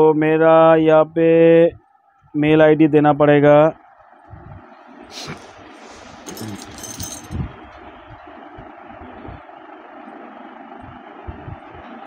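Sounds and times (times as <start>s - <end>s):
faint hum: 0.0s - 12.0s
light metallic clinks and rattles: 6.2s - 7.4s.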